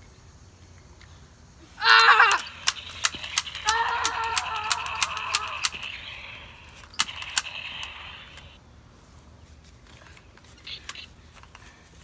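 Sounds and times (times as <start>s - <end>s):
child crying out: 1.8s - 2.5s, 3.6s - 5.8s
sharp clicks: 2.3s - 8.6s.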